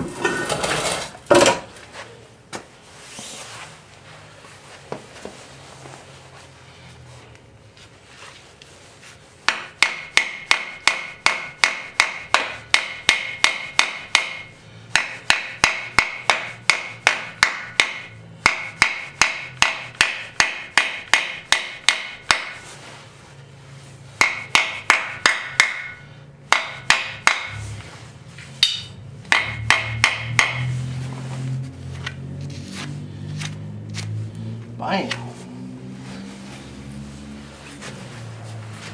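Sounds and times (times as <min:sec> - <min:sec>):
hammer striking metal: 0:09.5 - 0:22.6, 0:24.2 - 0:27.6, 0:28.6 - 0:30.7.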